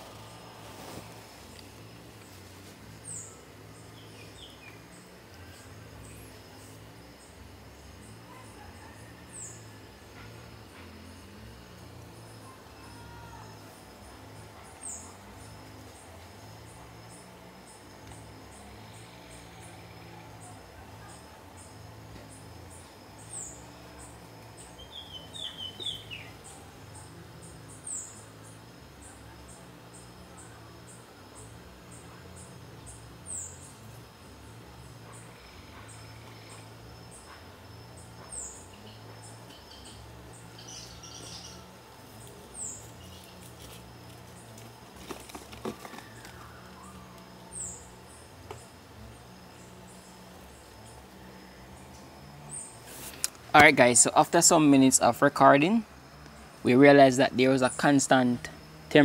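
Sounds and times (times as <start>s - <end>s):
insect chirping: 0.0s - 59.0s
high falling bird calls: 17.2s - 26.6s.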